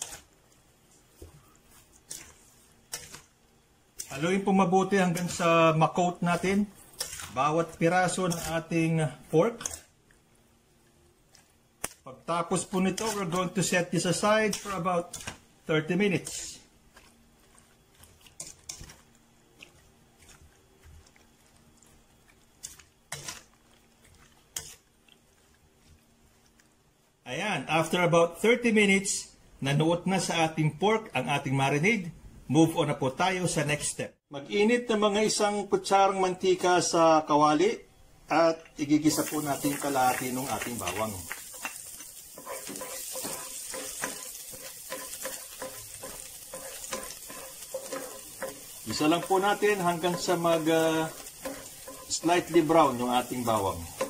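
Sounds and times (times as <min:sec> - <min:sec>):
garlic sizzling in oil: 0:00.0 - 0:09.9, 0:11.5 - 0:27.2, 0:38.8 - 0:54.0
spoon scraping metal bowl: 0:06.3 - 0:07.4, 0:40.0 - 0:54.0
wet squelching of meat: 0:16.8 - 0:26.8.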